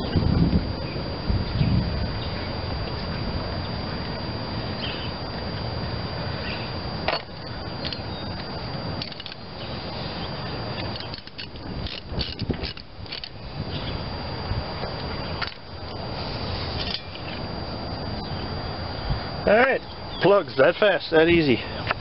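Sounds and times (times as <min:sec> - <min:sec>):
steady background hiss: 0:00.0 - 0:22.0.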